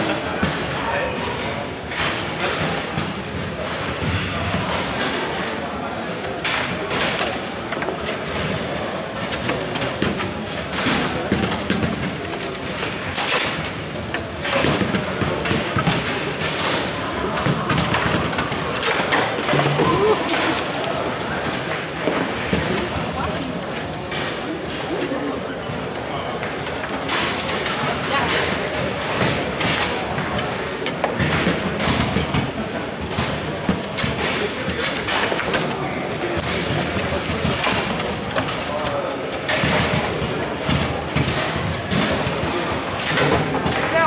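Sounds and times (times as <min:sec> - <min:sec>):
foosball rods rattling and sliding: 0:00.0 - 0:44.0
table football clacks: 0:01.4 - 0:25.0.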